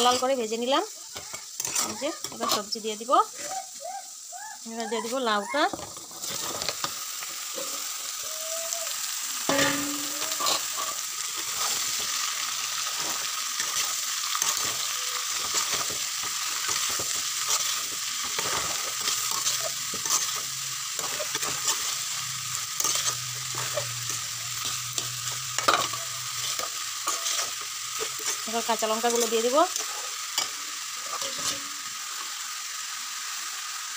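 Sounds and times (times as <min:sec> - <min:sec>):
vegetables sizzling in oil: 0:00.0 - 0:33.9
metal spatula scraping a pan: 0:01.2 - 0:02.8, 0:09.5 - 0:31.8.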